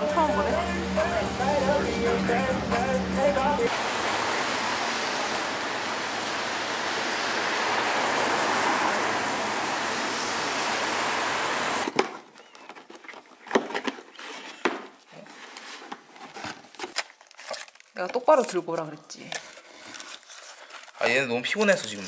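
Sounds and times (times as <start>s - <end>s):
busy street noise: 0.0s - 11.9s
paper packaging rustling and clicking: 11.9s - 22.0s.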